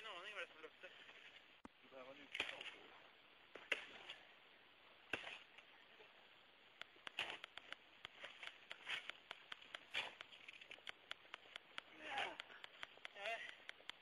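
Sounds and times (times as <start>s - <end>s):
sharp clicks: 6.8s - 14.0s.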